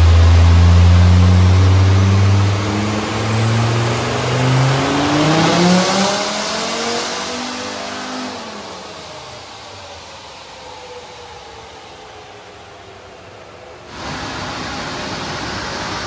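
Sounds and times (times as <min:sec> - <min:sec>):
diesel engine revving under load: 0:00.0 - 0:08.7
turbocharger whistle: 0:00.0 - 0:09.5.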